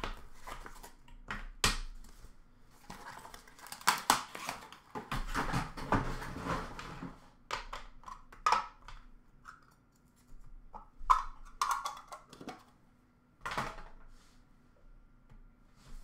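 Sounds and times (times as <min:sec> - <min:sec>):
card packs knocking and rustling: 0:02.8 - 0:07.0.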